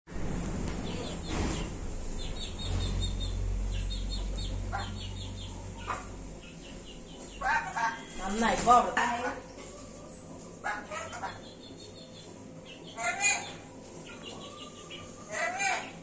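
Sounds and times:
steady low hum: 0.1s - 16.0s
parrot chirping: 2.2s - 8.2s, 10.1s - 16.0s.

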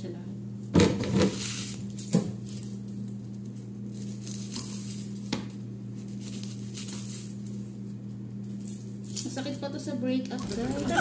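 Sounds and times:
onion skins crackling and tearing: 1.8s - 5.3s
steady low hum: 10.3s - 11.0s.

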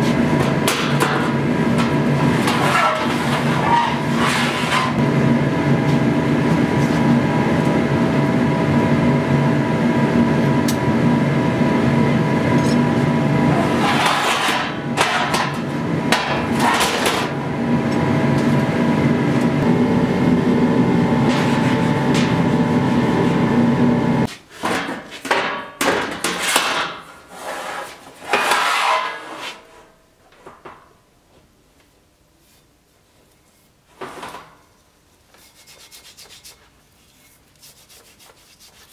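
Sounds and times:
mechanical roar with hum: 0.0s - 24.3s.

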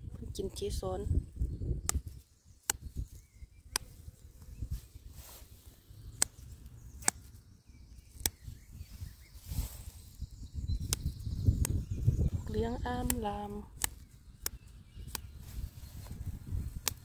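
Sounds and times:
flower stems snapping: 1.8s - 3.0s, 3.6s - 4.0s, 6.1s - 7.4s, 8.1s - 8.4s, 10.8s - 11.8s, 12.8s - 15.4s, 16.6s - 17.0s
grass rustling: 1.9s - 17.0s.

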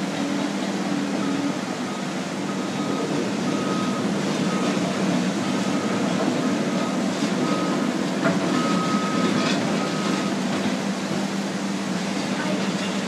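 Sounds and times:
diesel engines running: 0.0s - 13.0s
backup alarm beeping: 1.2s - 7.9s, 8.5s - 10.4s.

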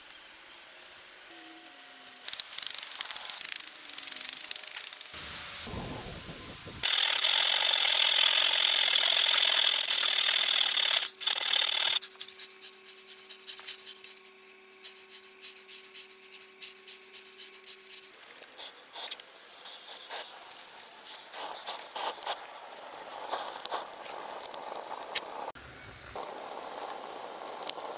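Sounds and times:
loud rushing hiss: 5.2s - 8.2s
wood fire crackling and popping: 21.1s - 27.9s.

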